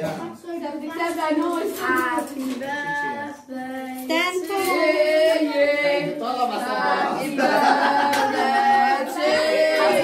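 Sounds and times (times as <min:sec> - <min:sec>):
group of voices singing: 0:02.6 - 0:10.0.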